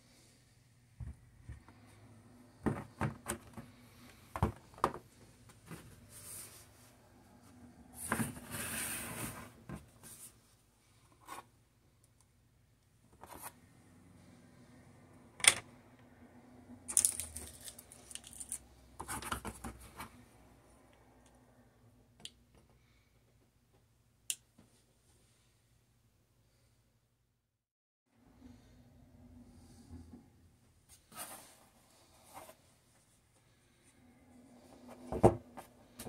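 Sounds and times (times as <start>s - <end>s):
cables rustling: 16.9s - 20.0s.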